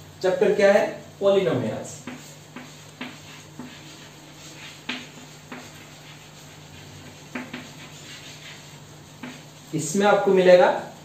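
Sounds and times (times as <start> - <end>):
steady low hum: 0.0 - 11.0
chalk tapping and scratching: 1.9 - 10.3.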